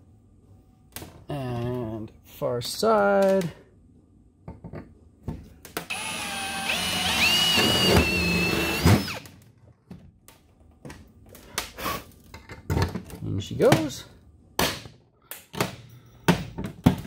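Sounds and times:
drill motor whine: 0:05.9 - 0:09.3.

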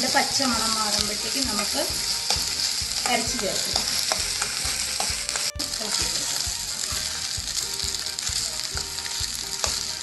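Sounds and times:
food sizzling in oil: 0:00.0 - 0:10.0
spatula scraping pan: 0:00.4 - 0:07.3.

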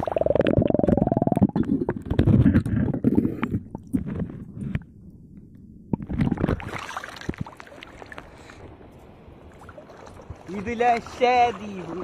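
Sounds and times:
muffled underwater churning: 0:00.0 - 0:05.1
rush of moving water: 0:06.3 - 0:12.0.

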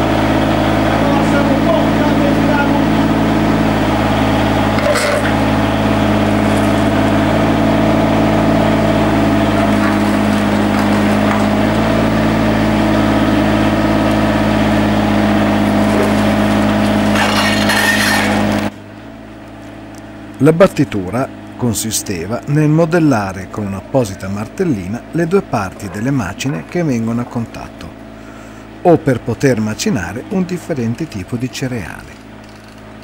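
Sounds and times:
diesel engine running: 0:00.0 - 0:33.0
stone scraping rattle: 0:04.8 - 0:05.4, 0:17.1 - 0:18.5, 0:32.2 - 0:32.9.

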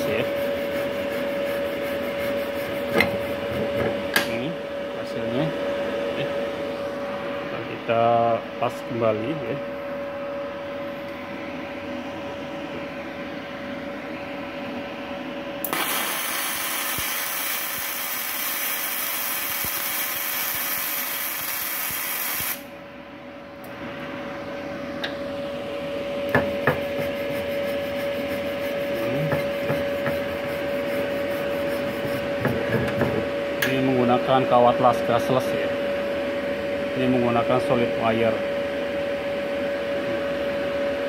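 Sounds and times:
welding arc hissing: 0:15.7 - 0:22.7
brush scrubbing weld beads: 0:27.0 - 0:32.3.

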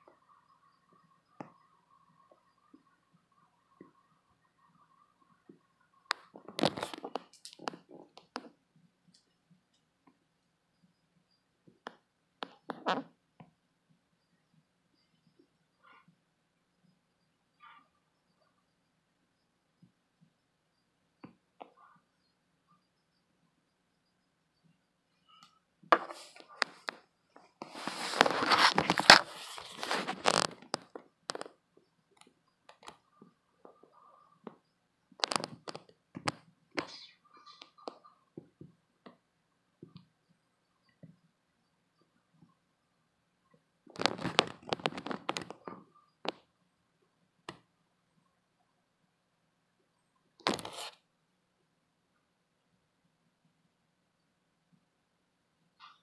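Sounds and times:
sharp clicks and light taps: 0:05.5 - 0:10.5
phone handling rustle: 0:27.6 - 0:31.4.

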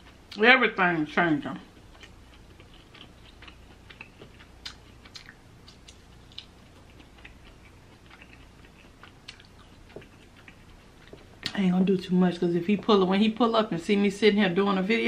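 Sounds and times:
faint low hum: 0:00.0 - 0:15.0
person chewing wetly: 0:01.7 - 0:11.6.

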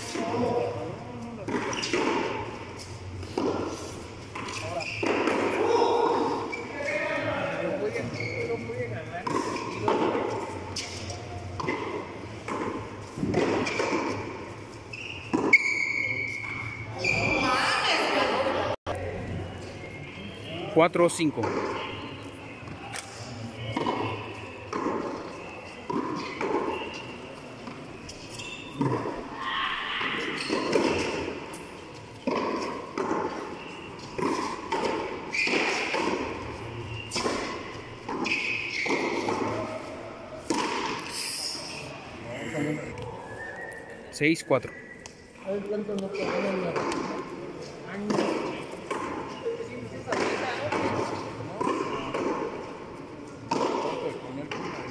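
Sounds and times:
ball hitting concrete walls: 0:00.0 - 0:06.3, 0:09.2 - 0:16.6, 0:22.6 - 0:27.9, 0:30.0 - 0:31.6, 0:32.2 - 0:41.2, 0:45.9 - 0:52.6, 0:53.4 - 0:54.9.

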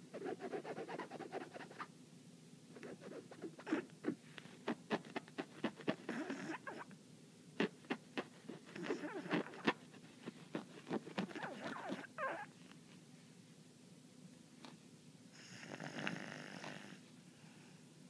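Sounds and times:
dog snoring: 0:03.6 - 0:06.9, 0:07.6 - 0:09.8, 0:15.4 - 0:17.0.

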